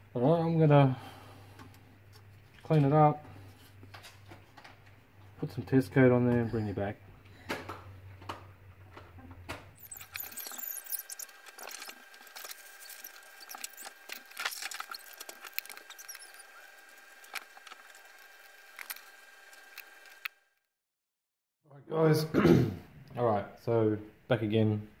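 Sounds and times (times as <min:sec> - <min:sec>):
faint high squeaks: 0:09.8 - 0:17.9.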